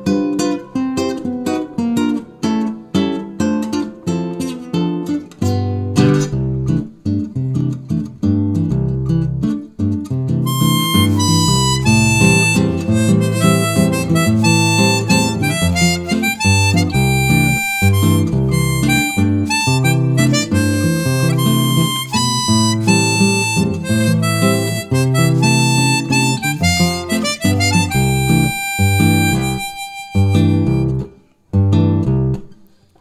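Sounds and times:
acoustic guitar accompaniment: 0.0 - 33.0
harmonica melody: 10.5 - 31.2.

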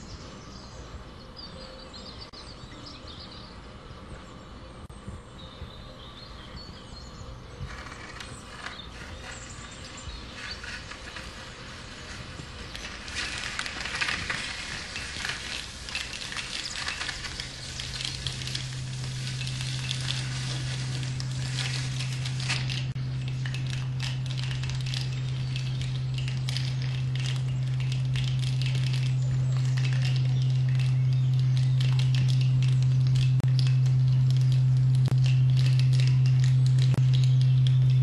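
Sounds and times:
low steady hum: 0.0 - 38.0
dense crackling sizzling noise: 7.6 - 38.0.

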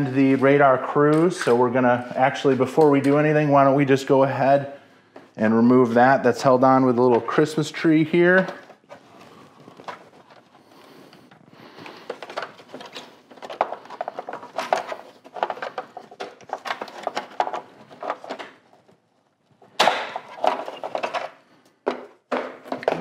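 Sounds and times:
plastic clatter: 8.3 - 23.0
plastic clicking and rattling: 8.3 - 23.0.

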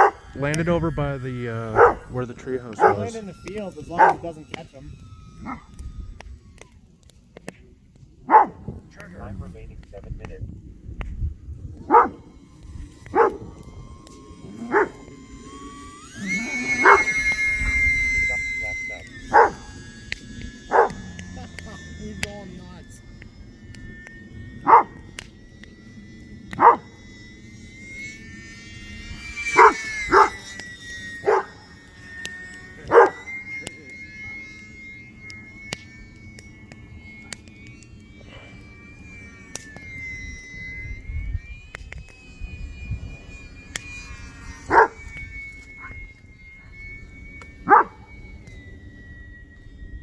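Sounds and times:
electric motor whine: 0.0 - 50.0
dog barking: 8.3 - 8.6, 11.9 - 12.1.

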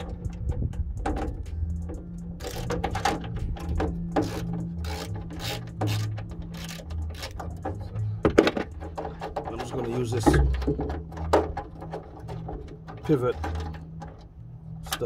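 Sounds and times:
wind rumble on microphone: 0.0 - 2.3
ratchet wrench clicking: 0.0 - 8.0.

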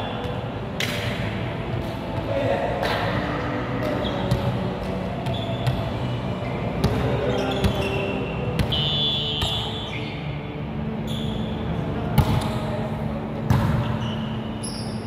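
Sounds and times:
large gym background: 0.0 - 15.0
volleyball being hit: 0.8 - 2.0.

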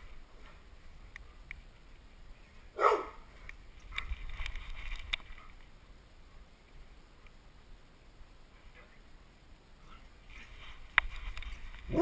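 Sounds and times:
clicks and rustling: 3.4 - 5.7, 10.3 - 12.0.

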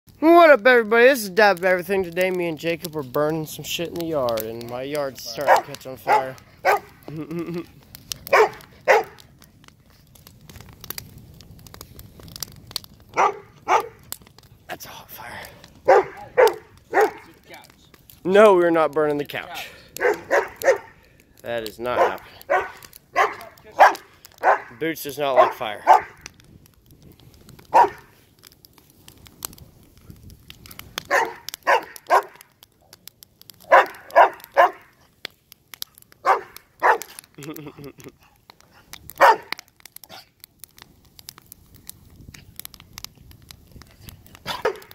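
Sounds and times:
fire crackling and popping: 0.1 - 44.9
dog barking: 5.4 - 6.9, 8.3 - 9.2, 13.2 - 14.0, 15.8 - 17.2, 20.0 - 21.0, 22.0 - 24.7, 25.4 - 26.2, 27.7 - 28.0, 31.1 - 32.4, 33.7 - 34.9, 36.2 - 37.2, 39.2 - 39.5, 44.5 - 44.9.

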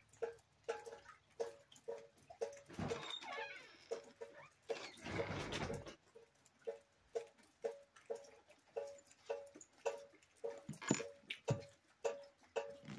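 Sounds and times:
water dripping into a bucket: 0.0 - 12.9.

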